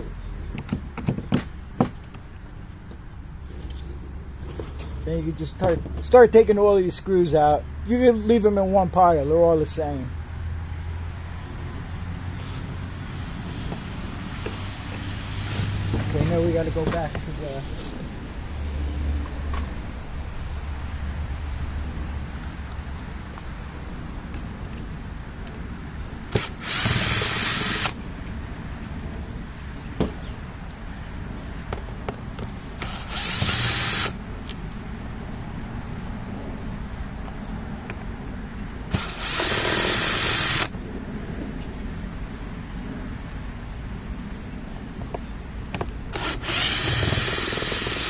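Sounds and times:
power drill running: 0:26.3 - 0:28.0, 0:32.8 - 0:34.2, 0:38.9 - 0:40.7, 0:46.1 - 0:48.0.

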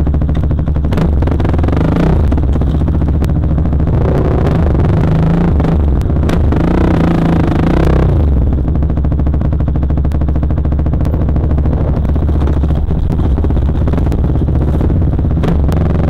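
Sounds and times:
dirt bike engine running: 0:00.0 - 0:16.0.

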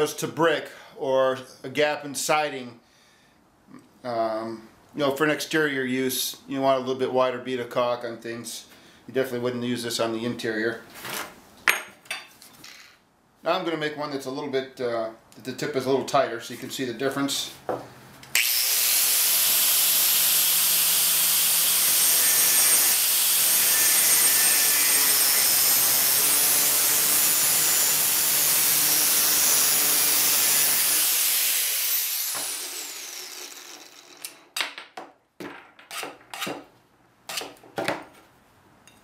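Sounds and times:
angle grinder cutting pipe: 0:18.3 - 0:34.4.

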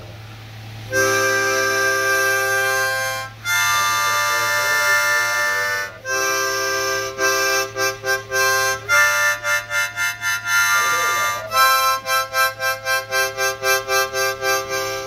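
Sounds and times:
harmonica chords and notes: 0:00.9 - 0:15.0.

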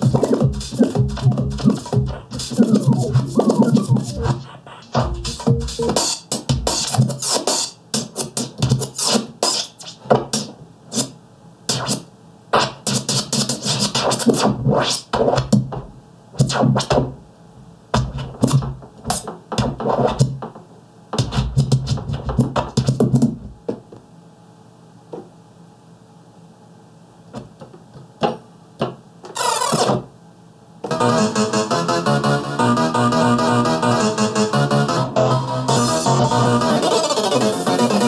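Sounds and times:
turntable scratching: 0:00.0 - 0:17.2, 0:17.9 - 0:23.4, 0:29.3 - 0:30.1, 0:30.9 - 0:38.0.

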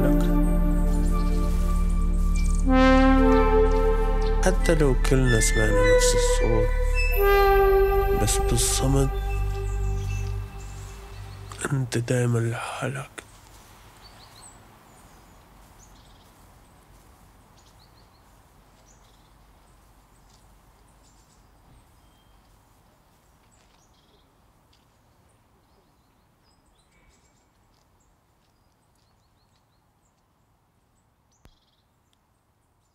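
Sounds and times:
soft hiss: 0:00.0 - 0:05.5, 0:06.2 - 0:25.3
small birds chirping: 0:08.8 - 0:32.9.

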